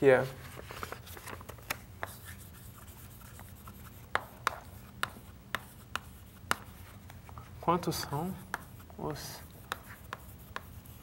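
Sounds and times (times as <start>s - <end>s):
chalk tapping on board: 2.0s - 7.2s, 7.9s - 11.0s
chalk writing on blackboard: 2.0s - 11.0s.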